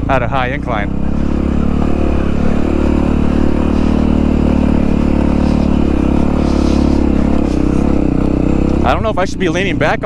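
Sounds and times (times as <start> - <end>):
dirt bike engine climbing hill: 0.0 - 10.0.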